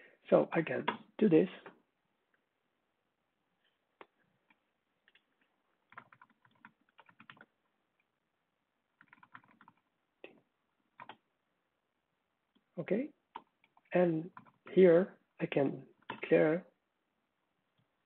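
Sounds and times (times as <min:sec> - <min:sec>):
faint keyboard typing: 0:04.0 - 0:08.1, 0:08.9 - 0:11.3, 0:12.5 - 0:14.7, 0:16.0 - 0:16.4.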